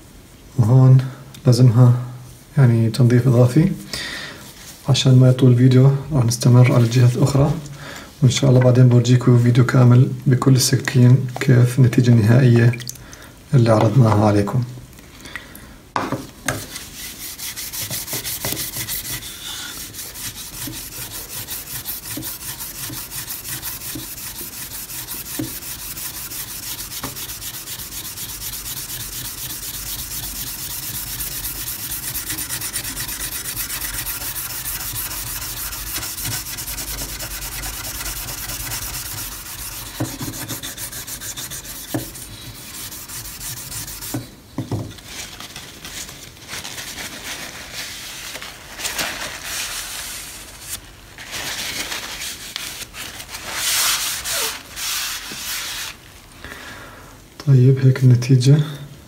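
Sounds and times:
knife blade being scrubbed: 16.7 - 44.2.

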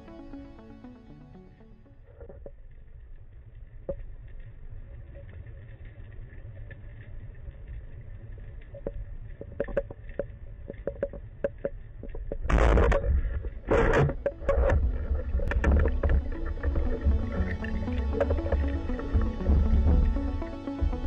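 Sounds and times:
low rumble of moving water: 0.0 - 21.0
sharp underwater clicks: 5.1 - 20.9
water rushing: 9.3 - 21.0.

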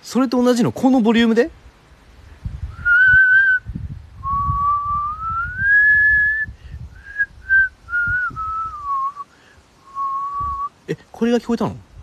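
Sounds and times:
man whistling: 2.7 - 10.8.

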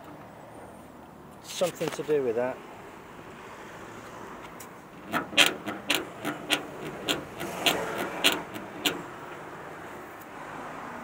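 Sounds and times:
fender squeaking against body: 4.4 - 9.5.

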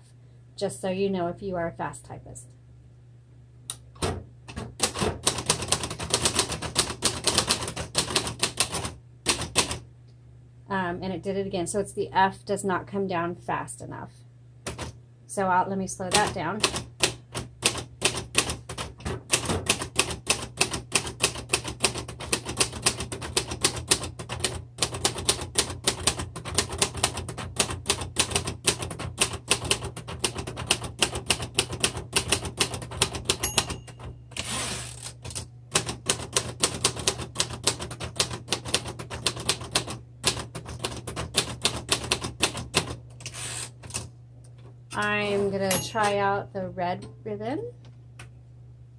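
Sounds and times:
manual typewriter typing: 4.0 - 9.8, 14.7 - 15.0, 16.0 - 44.1
typewriter carriage return: 17.4 - 44.1
typewriter bell ring: 33.4 - 34.4, 45.7 - 46.2.

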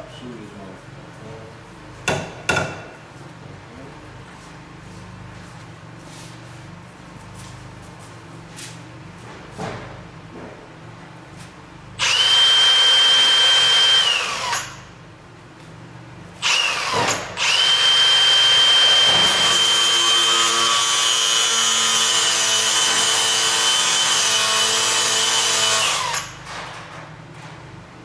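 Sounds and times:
power tool motor whine: 12.0 - 14.8, 16.4 - 26.3.

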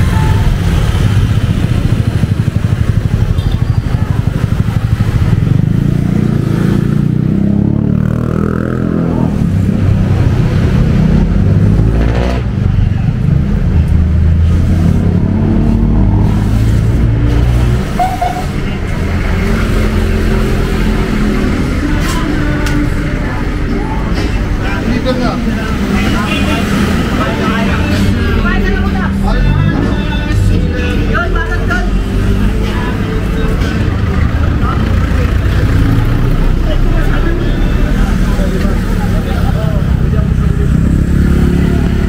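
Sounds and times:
motorcycle engine running: 0.0 - 11.8.

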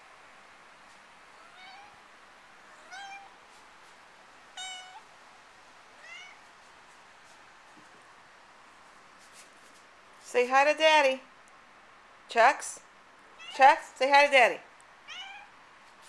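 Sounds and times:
kitten meowing: 1.4 - 2.0, 2.8 - 3.3, 4.6 - 5.0, 6.0 - 6.4, 15.1 - 15.5.

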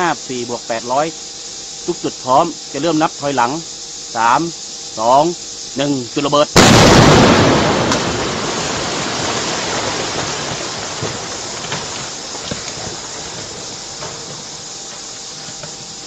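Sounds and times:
explosion rumbling: 6.6 - 13.6
rocks knocking: 7.9 - 15.9.

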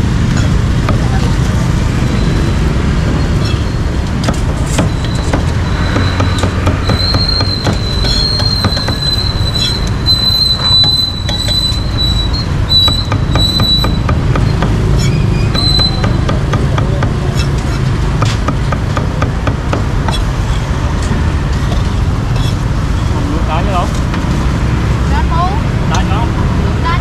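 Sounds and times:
cleaver chopping on wooden block: 4.2 - 9.1, 12.9 - 15.1, 15.8 - 17.6.

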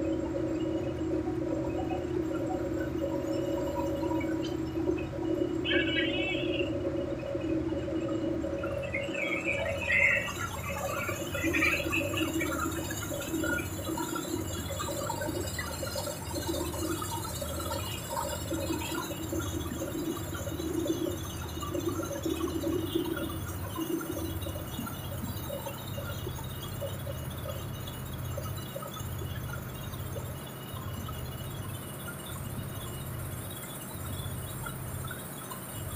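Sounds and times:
low machine hum: 0.0 - 35.9
wavering high machine tone: 0.0 - 35.9.

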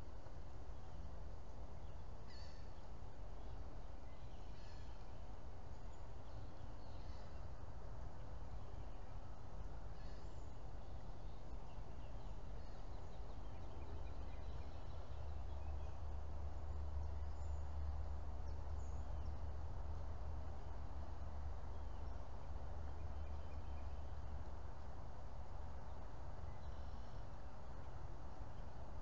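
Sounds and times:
faint bird chirps: 1.8 - 7.6, 8.2 - 19.6, 25.9 - 28.7.

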